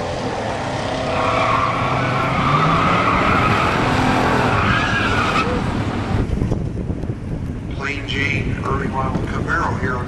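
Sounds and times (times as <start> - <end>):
tires skidding: 0.0 - 6.4
car engine at high revs: 0.0 - 6.6.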